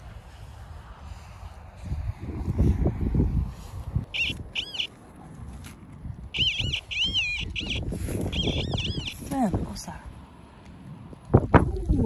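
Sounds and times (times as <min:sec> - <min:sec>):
metal detector warbling beeps: 0:04.1 - 0:04.9, 0:06.4 - 0:09.3.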